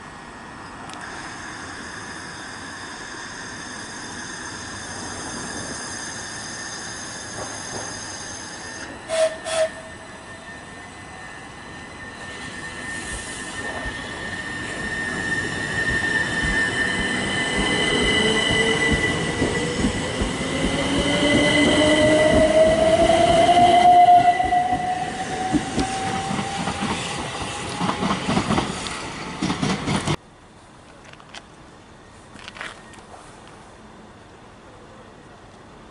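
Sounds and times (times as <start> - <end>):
high whistling tones: 1.0 - 27.7.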